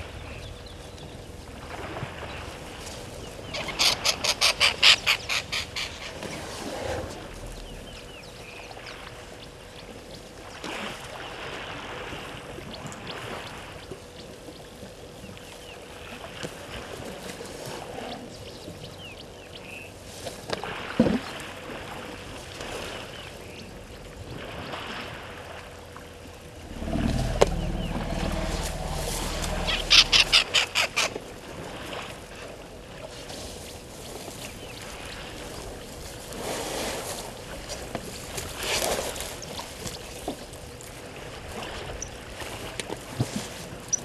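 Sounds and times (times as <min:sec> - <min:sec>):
bird calls: 0:03.2 - 0:06.5, 0:07.2 - 0:09.5, 0:26.6 - 0:31.2
water sloshing and lapping: 0:20.1 - 0:44.0.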